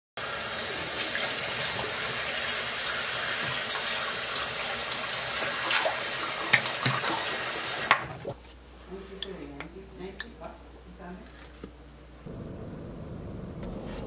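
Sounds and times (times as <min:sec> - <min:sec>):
tap water running into sink: 0:00.2 - 0:08.3.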